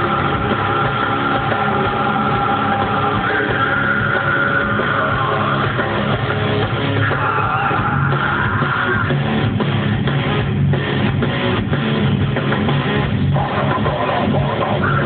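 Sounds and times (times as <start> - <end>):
live rock band: 0.0 - 15.0.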